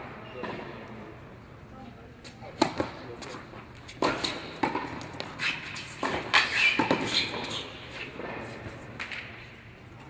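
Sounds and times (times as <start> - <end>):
racket hitting tennis ball: 2.6 - 9.4
shoes squeaking on court: 3.8 - 8.9.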